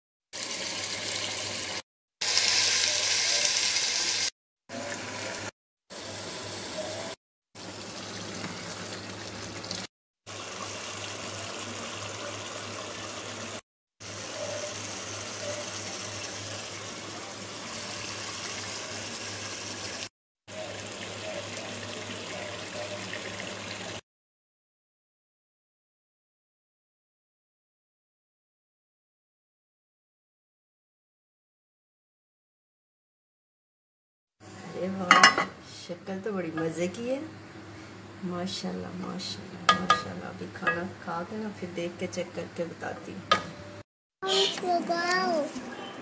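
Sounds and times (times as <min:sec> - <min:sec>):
food sizzling in a pot: 0:00.4 - 0:24.0, 0:34.4 - 0:45.6.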